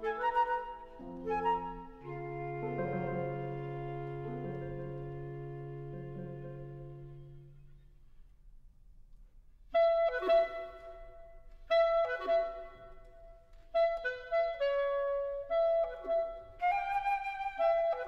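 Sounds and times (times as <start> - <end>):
clarinet birdsong-like figure: 0.0 - 7.8.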